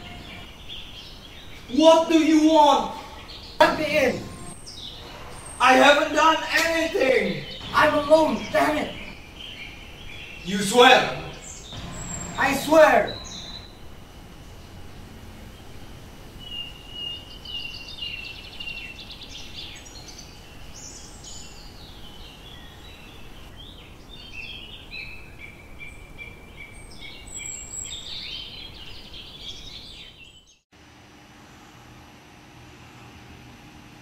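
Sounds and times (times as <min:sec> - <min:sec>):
small birds chirping: 0:00.0 - 0:13.8, 0:14.4 - 0:30.6
steady background hiss: 0:00.0 - 0:25.7.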